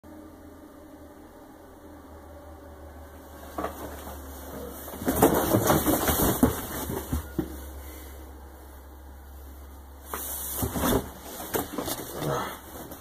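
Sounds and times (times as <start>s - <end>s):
steady low hum: 0.0s - 13.0s
cardboard boxes clattering: 3.4s - 7.8s, 10.1s - 13.0s.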